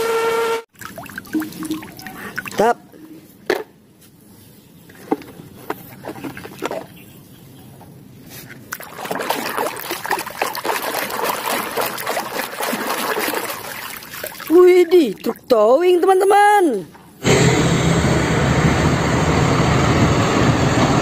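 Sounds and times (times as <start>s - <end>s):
water dripping: 0.7s - 2.8s, 8.7s - 15.6s
water splashing in plastic tub: 0.7s - 2.8s, 8.7s - 15.6s.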